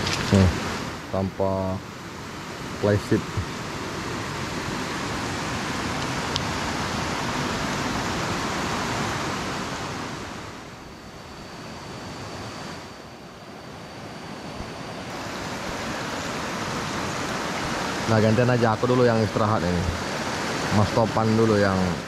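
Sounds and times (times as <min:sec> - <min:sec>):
river water rushing over rocks: 0:00.0 - 0:01.1, 0:15.1 - 0:22.0.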